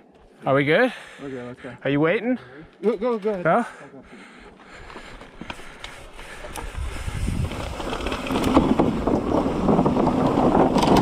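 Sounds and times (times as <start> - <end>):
bike rattling: 4.5 - 11.0
bike tyres on rock: 4.6 - 11.0.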